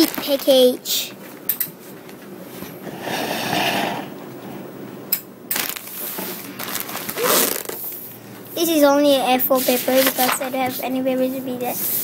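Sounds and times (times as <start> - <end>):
plastic bag rustling and crinkling: 0.0 - 1.0, 5.6 - 8.0, 9.5 - 10.5.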